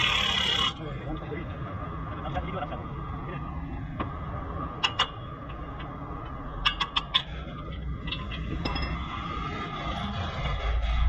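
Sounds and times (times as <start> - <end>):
workshop background noise: 0.0 - 11.0.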